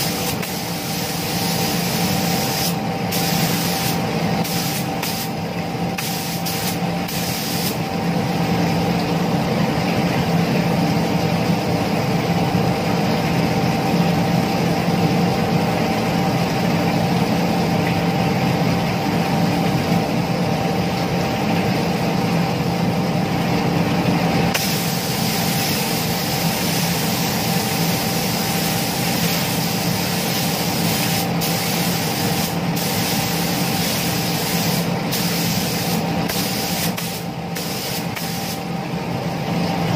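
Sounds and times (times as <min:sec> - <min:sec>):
spray gun hissing: 0:00.0 - 0:05.4, 0:06.0 - 0:07.8, 0:24.6 - 0:38.7
spray booth rush and hum: 0:00.0 - 0:08.6, 0:24.4 - 0:39.5.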